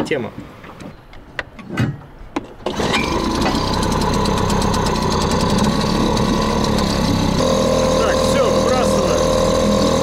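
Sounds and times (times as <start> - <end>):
small outboard motor running: 2.6 - 10.0.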